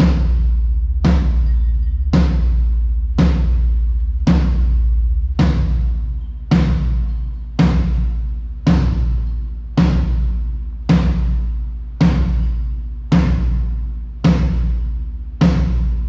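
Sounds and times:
tom drum hits: 0.0 - 16.0.

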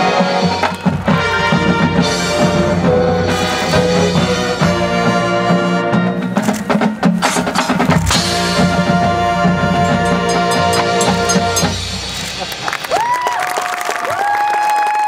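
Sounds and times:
brass holding chords: 0.0 - 6.3, 8.1 - 12.1
marching percussion: 0.0 - 13.3.

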